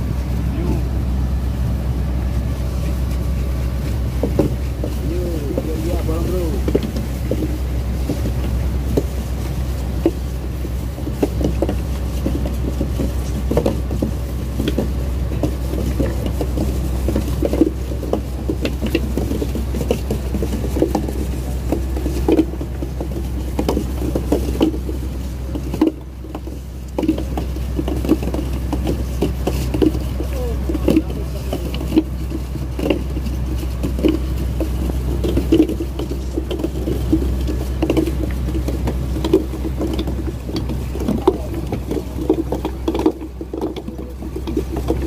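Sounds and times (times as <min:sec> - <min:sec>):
boat engine hum: 0:00.0 - 0:45.0
plastic floats knocking on wood: 0:11.0 - 0:45.0.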